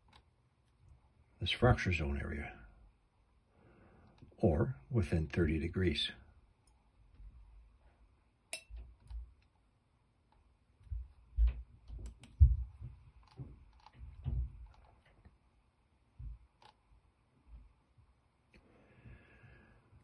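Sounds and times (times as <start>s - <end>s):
computer mouse clicks: 0.0s - 0.8s, 12.0s - 12.4s, 13.1s - 14.0s, 16.5s - 16.8s.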